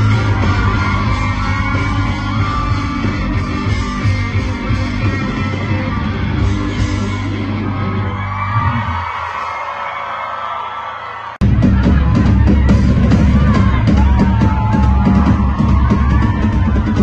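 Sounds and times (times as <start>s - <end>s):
electric guitar: 0.0s - 9.0s
live rock band playing: 0.0s - 9.0s, 11.4s - 17.0s
bass guitar: 0.0s - 9.2s, 11.4s - 17.0s.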